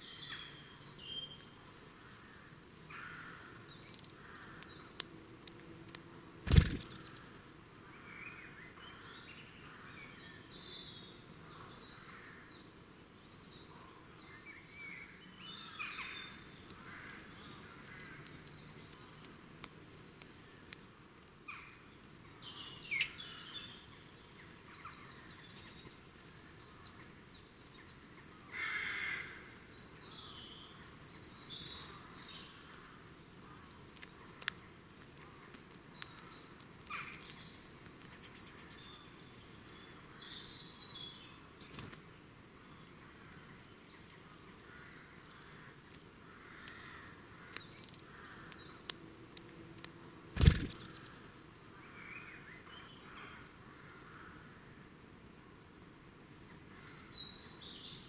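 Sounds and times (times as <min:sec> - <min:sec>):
small birds singing and calling: 0:00.0 - 0:58.0
soft outdoor hiss: 0:00.0 - 0:58.0.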